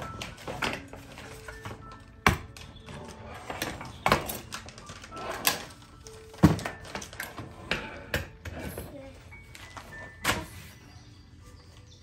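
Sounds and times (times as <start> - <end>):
toy stroller clicks and knocks: 0.0 - 8.9.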